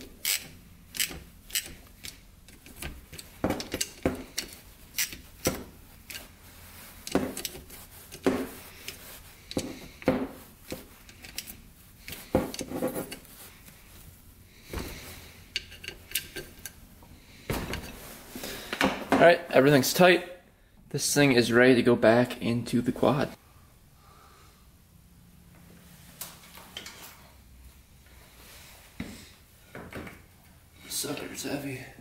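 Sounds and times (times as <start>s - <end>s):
wrench clicking on bolts: 0.0s - 6.3s, 10.7s - 13.2s, 15.5s - 16.8s.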